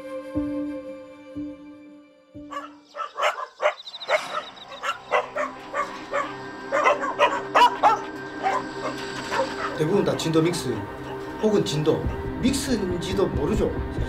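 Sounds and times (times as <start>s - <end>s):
background music: 0.0s - 14.0s
dogs barking: 2.5s - 12.4s.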